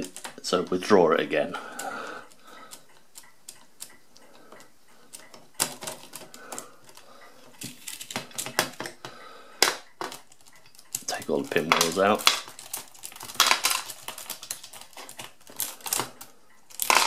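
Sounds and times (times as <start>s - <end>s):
metallic clicking of calculator wheels: 9.7s - 17.0s.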